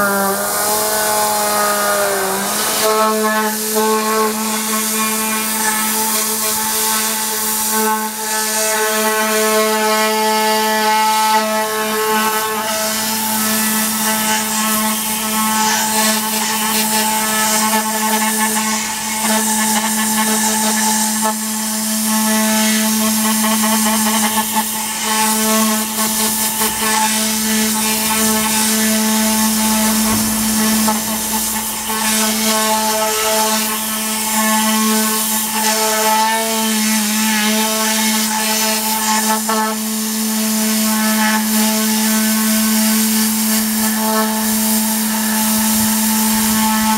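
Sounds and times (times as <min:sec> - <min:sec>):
air gun hissing: 0:00.0 - 0:46.9
pitched hum: 0:23.1 - 0:35.8, 0:43.4 - 0:46.9.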